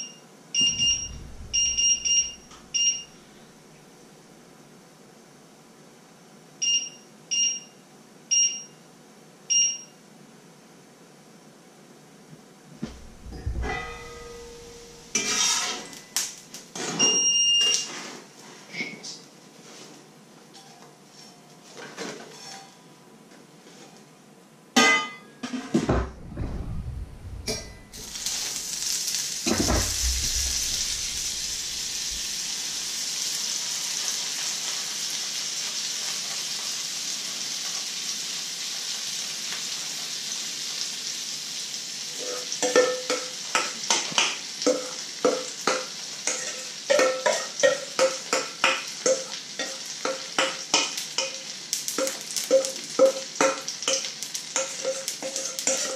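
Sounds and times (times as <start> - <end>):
metal cookware clattering: 12.8 - 17.1, 24.8 - 26.1, 27.2 - 32.4, 42.6 - 55.9
pan lid ringing: 13.4 - 16.1
butter sizzling in frying pan: 27.9 - 55.9.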